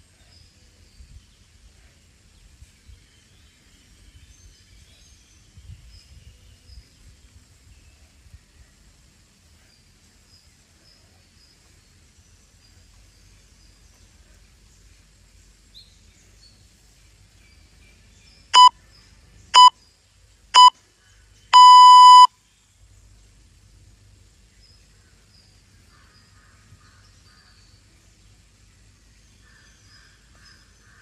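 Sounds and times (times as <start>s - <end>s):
faint birds: 0.0s - 31.0s
insects: 0.0s - 31.0s
interval timer beeping: 21.6s - 22.3s.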